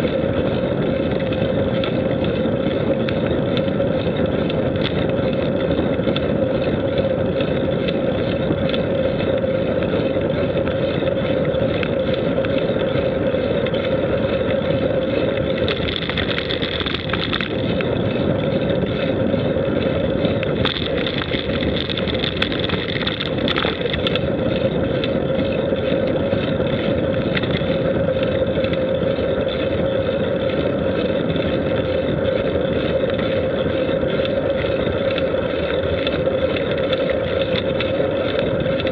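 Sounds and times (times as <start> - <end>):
vehicle driving on paved road: 0.0 - 38.9
short crackles: 15.5 - 17.9, 20.5 - 24.2.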